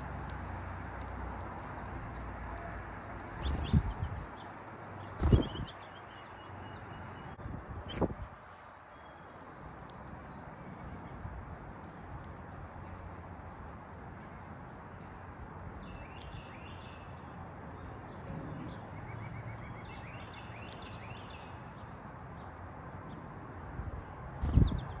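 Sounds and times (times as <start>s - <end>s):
songbirds chirping: 0.0s - 25.0s
bird trill: 3.3s - 8.1s.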